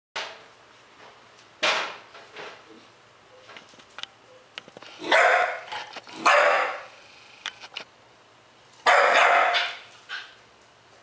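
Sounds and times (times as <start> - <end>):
puppy barking: 5.0 - 6.9, 8.8 - 10.4.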